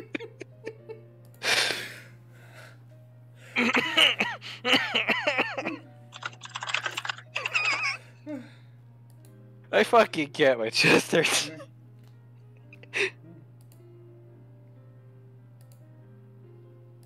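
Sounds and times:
quiet background music: 0:00.0 - 0:17.0
high-pitched laughter: 0:03.6 - 0:08.1.

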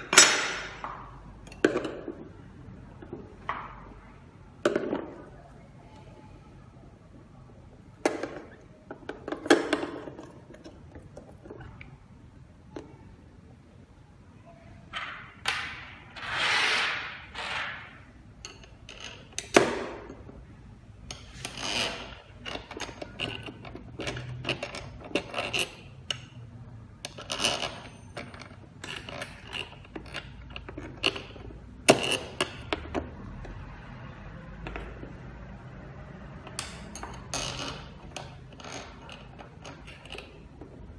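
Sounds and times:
lock parts clicking and scraping: 0:00.0 - 0:02.3, 0:21.0 - 0:33.7, 0:36.3 - 0:40.9.

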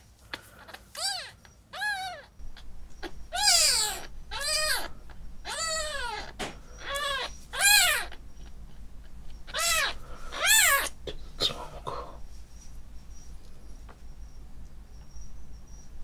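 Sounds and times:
kitten mewing: 0:00.6 - 0:11.8.

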